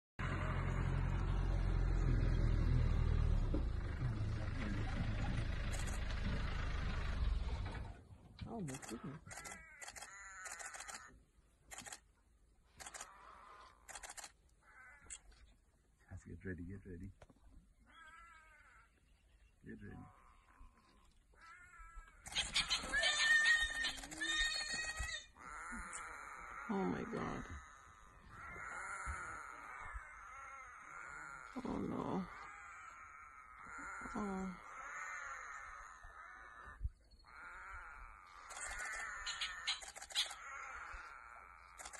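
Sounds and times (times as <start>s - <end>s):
vehicle engine idling: 0.2s - 11.0s, 23.8s - 24.2s
animal screeching yowl: 21.4s - 41.9s.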